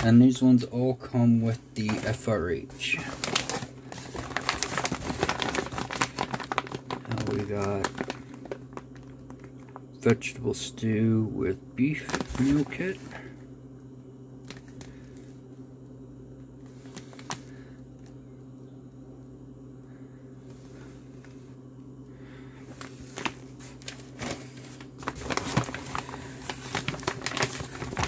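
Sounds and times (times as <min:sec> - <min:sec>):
low hum: 0:00.0 - 0:28.0
plastic pouches crinkling: 0:01.8 - 0:09.9, 0:11.8 - 0:13.3, 0:14.4 - 0:15.2, 0:16.8 - 0:18.1, 0:22.6 - 0:28.0.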